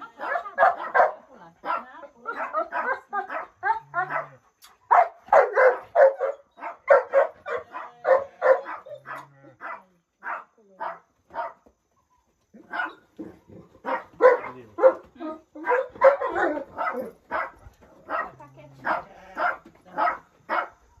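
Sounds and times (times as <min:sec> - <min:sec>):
dog barking: 0:00.2 - 0:11.6, 0:12.6 - 0:20.8.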